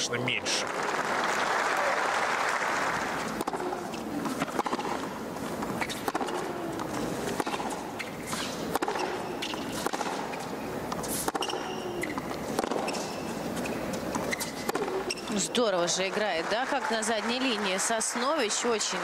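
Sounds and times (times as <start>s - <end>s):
tennis racket hits: 3.2s - 15.4s
tennis ball bounces: 3.2s - 19.0s.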